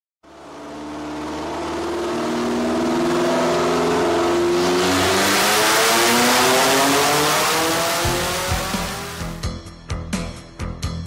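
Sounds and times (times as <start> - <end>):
car engine accelerating: 0.2 - 9.5.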